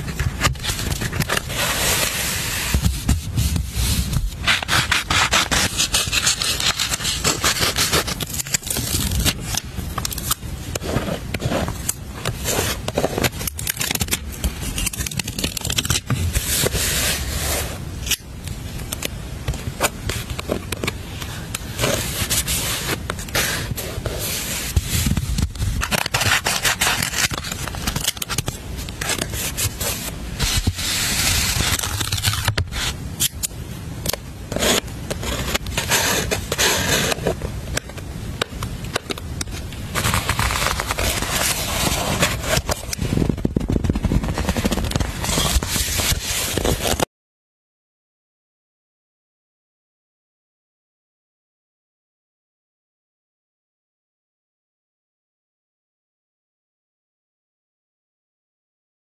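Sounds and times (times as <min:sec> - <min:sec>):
paper stickers scraping and crackling: 0:00.0 - 0:18.2, 0:19.8 - 0:47.1.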